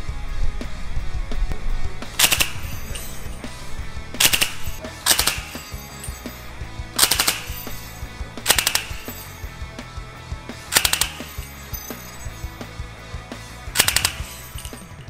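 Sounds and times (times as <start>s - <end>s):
suppressed machine gun bursts: 2.2s - 3.4s, 4.2s - 6.4s, 7.0s - 9.5s, 10.7s - 12.4s, 13.7s - 15.0s.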